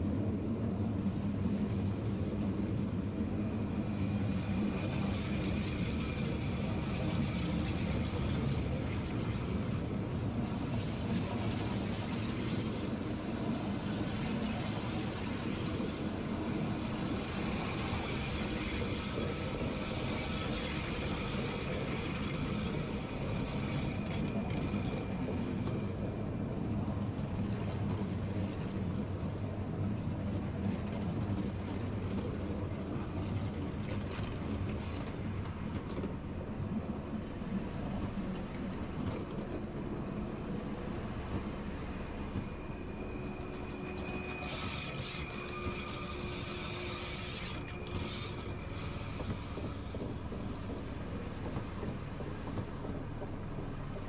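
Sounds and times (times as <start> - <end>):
faint high whine: 42.0 - 49.8
electric train motor hum: 43.3 - 53.5
rolling hiss: 48.3 - 53.8.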